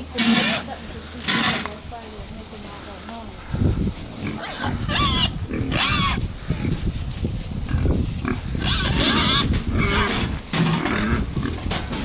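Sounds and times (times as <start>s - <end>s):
pigs grunting: 0.0s - 1.7s, 3.4s - 6.8s, 7.7s - 12.0s
pigs squealing: 0.2s - 1.7s, 4.2s - 6.3s, 7.7s - 11.6s.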